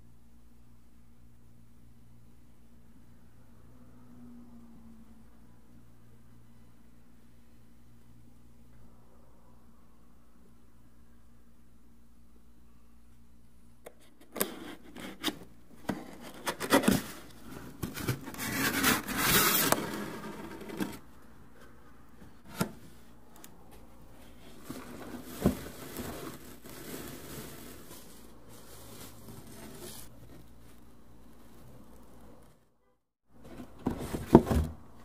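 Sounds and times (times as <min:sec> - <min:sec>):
cardboard rustling: 0:14.3 - 0:23.0, 0:24.1 - 0:32.5, 0:33.4 - 0:34.8
cardboard box scraping: 0:14.4 - 0:21.0, 0:24.4 - 0:30.5.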